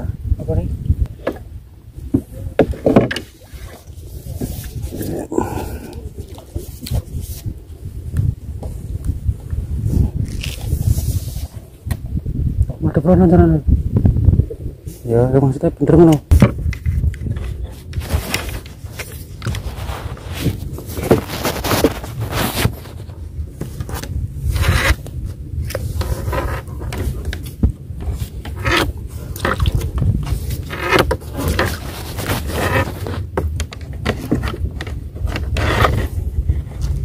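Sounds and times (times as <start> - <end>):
steady low rumble: 0.0 - 33.8
rope scraping on wooden boat: 2.6 - 5.5, 9.9 - 11.7, 16.4 - 25.0, 25.6 - 33.4, 34.0 - 37.0.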